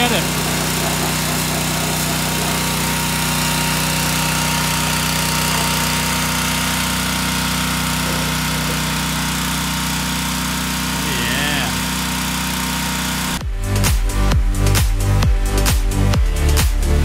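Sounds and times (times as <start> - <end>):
water jet hissing: 0.0 - 13.4
pressure washer engine humming: 0.0 - 17.0.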